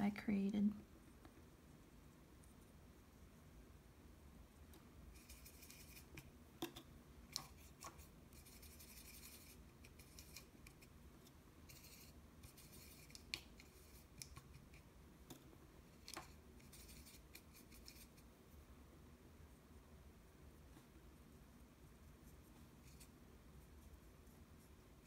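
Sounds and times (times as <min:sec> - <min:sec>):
brush ticking against palette: 0:04.7 - 0:18.3
brush scrubbing paint in palette: 0:05.1 - 0:18.3, 0:21.4 - 0:25.0.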